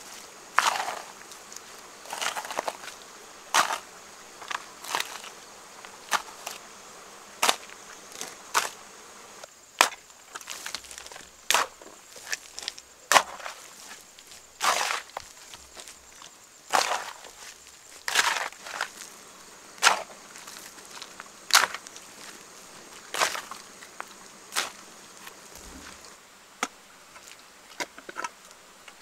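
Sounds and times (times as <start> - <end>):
hoe chopping muddy soil: 0.0 - 6.6, 7.4 - 8.8, 9.8 - 16.0, 16.7 - 19.2, 19.8 - 23.7, 24.5 - 24.9.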